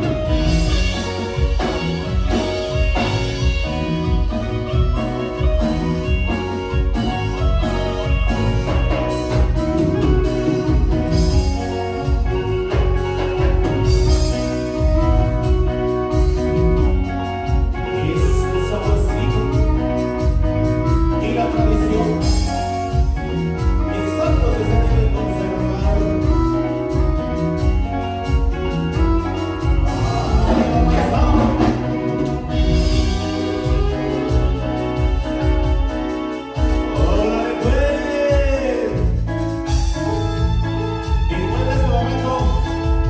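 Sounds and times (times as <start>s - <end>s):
keyboard: 0.0s - 43.0s
pulsing bass beat: 0.0s - 43.0s
person singing: 29.7s - 35.0s, 36.6s - 39.2s.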